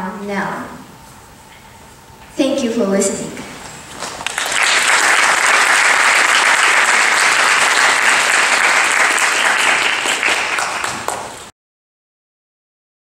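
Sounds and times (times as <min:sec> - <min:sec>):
audience applauding: 0:04.0 - 0:11.5.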